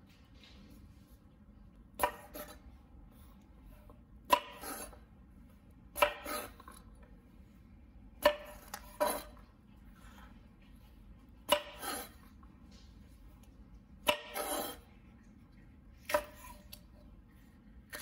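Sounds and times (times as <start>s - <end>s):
knife scraping board: 2.0s - 2.7s, 4.3s - 5.0s, 6.0s - 6.8s, 8.2s - 9.4s, 11.5s - 12.3s, 14.1s - 14.9s.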